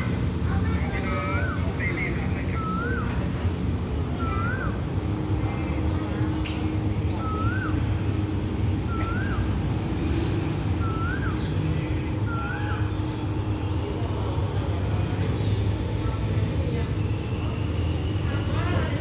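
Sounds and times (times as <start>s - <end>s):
bird whistled call: 2.5s - 3.2s, 4.1s - 4.9s, 7.1s - 7.9s, 8.8s - 9.6s, 10.8s - 13.0s.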